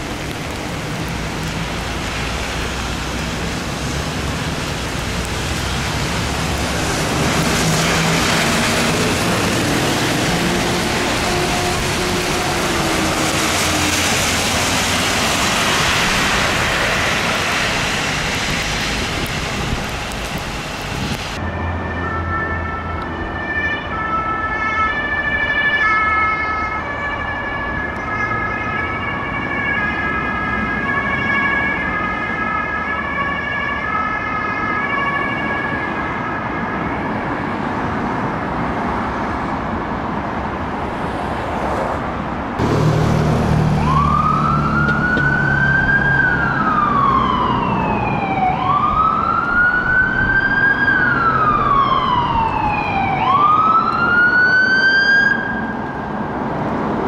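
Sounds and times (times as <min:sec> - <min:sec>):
tyres hissing on wet road: 0:00.0 - 0:21.4, 0:40.8 - 0:48.0
two-tone ambulance siren: 0:06.4 - 0:17.7, 0:21.4 - 0:37.7, 0:42.6 - 0:56.2.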